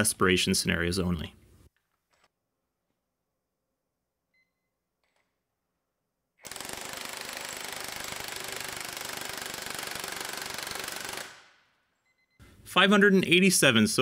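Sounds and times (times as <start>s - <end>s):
impact wrench hammering: 6.4s - 11.6s.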